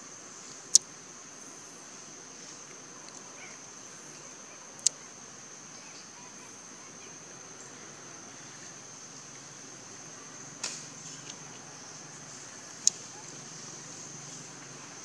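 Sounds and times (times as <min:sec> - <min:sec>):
insects droning: 0:00.0 - 0:15.0
sharp click: 0:10.6 - 0:10.9.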